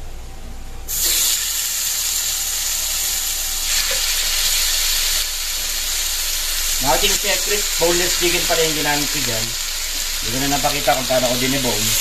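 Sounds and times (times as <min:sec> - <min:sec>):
chicken sizzling in hot oil: 0:00.9 - 0:12.0.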